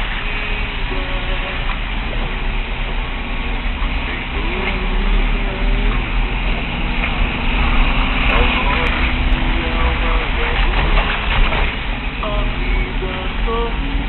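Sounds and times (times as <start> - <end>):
vehicle engine and road noise: 0.0 - 14.0
faint voices: 7.4 - 11.4.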